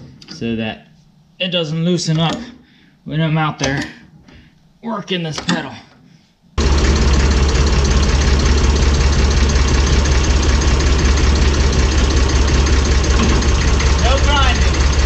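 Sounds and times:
tractor engine running: 6.6s - 15.0s.

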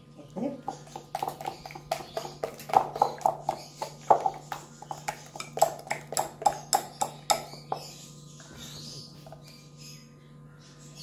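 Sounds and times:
batter being beaten in bowl: 0.6s - 8.0s.

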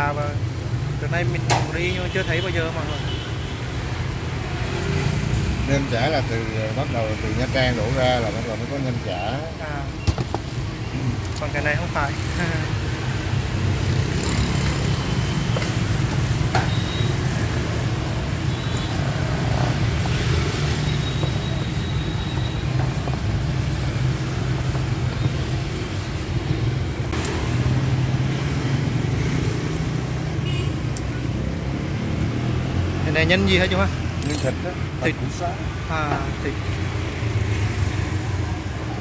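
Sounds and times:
street traffic rumble: 0.0s - 39.0s.

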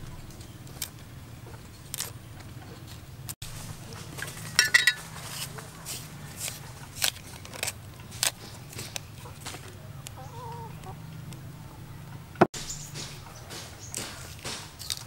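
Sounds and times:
knife scraping cassava rind: 4.1s - 9.6s.

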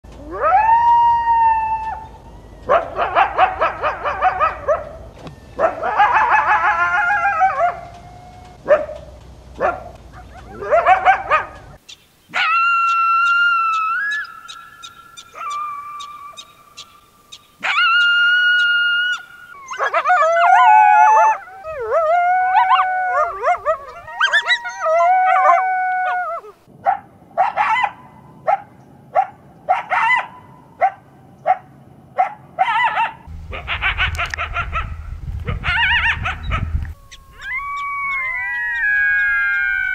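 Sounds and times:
coyotes yipping and howling: 0.2s - 8.8s, 9.6s - 11.7s, 12.3s - 26.7s, 32.2s - 39.9s
coyote barks: 2.7s - 5.0s, 5.6s - 7.9s, 9.6s - 11.6s, 26.8s - 39.6s.

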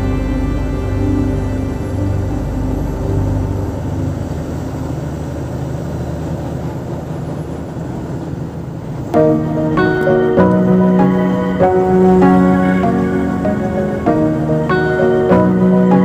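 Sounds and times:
music: 0.0s - 4.9s, 9.2s - 16.0s
vehicle road noise: 0.0s - 16.0s.

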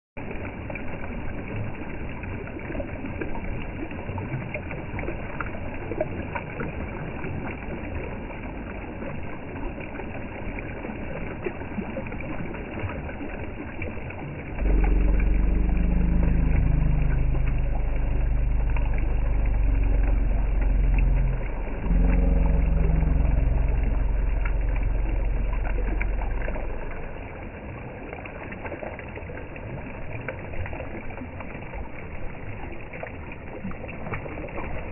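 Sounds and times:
river water rushing over stones: 0.2s - 34.9s
vehicle engine running loudly: 14.6s - 26.8s.

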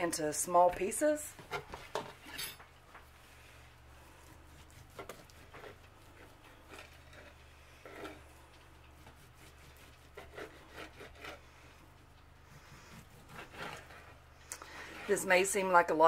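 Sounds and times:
low steady hum: 0.0s - 16.0s
knife slicing bacon on board: 4.5s - 7.0s, 12.9s - 14.1s.

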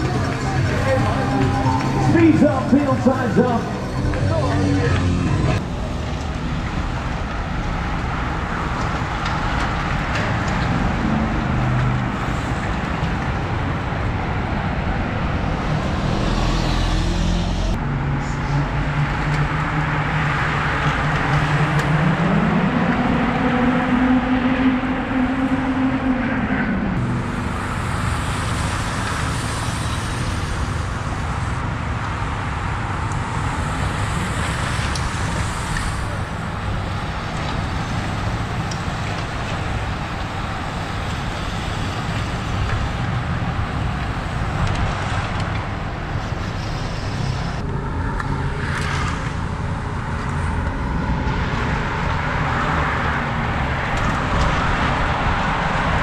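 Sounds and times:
bikes rushing past: 0.0s - 25.8s.

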